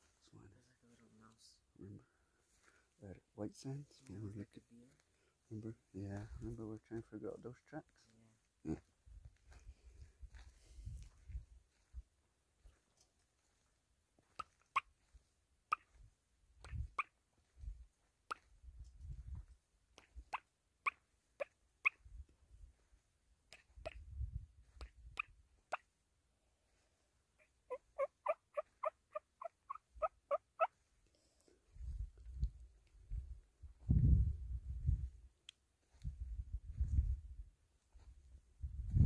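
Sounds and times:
footsteps on dirt track: 7.9s - 19.6s, 30.8s - 35.2s, 35.8s - 39.0s
short sharp animal calls: 15.7s - 16.0s, 16.6s - 17.2s, 20.1s - 22.1s, 27.4s - 30.8s.

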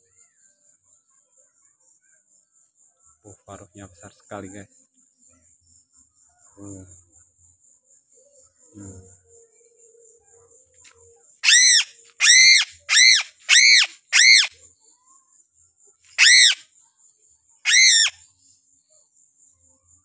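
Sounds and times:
crickets chirring: 11.4s - 14.5s, 16.2s - 16.8s, 17.7s - 20.0s
crow giving harsh calls: 11.4s - 14.5s, 16.2s - 16.6s, 17.7s - 18.1s.

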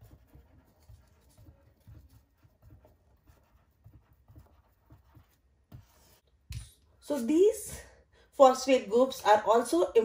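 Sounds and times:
marker squeaking on whiteboard: 0.0s - 6.2s.

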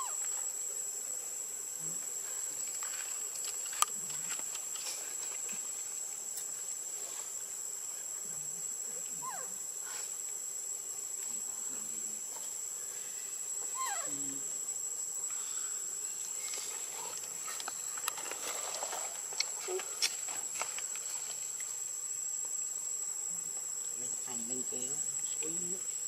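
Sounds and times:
insects droning: 0.0s - 26.0s
baby monkey crying: 9.2s - 9.5s, 13.7s - 14.2s.

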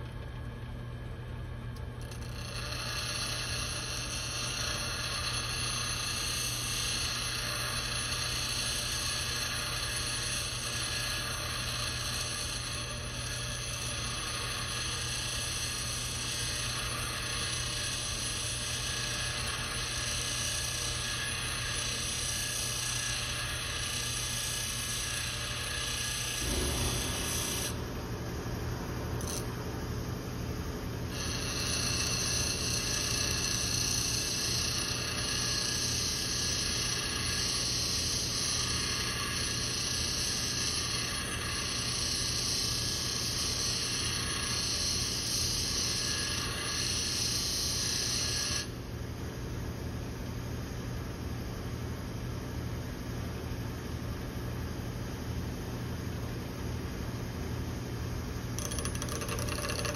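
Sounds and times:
bench grinder motor hum: 2.0s - 27.8s, 31.1s - 48.7s, 58.6s - 59.9s
steel grinding rasp: 2.1s - 27.8s, 31.1s - 48.7s, 58.6s - 59.9s.

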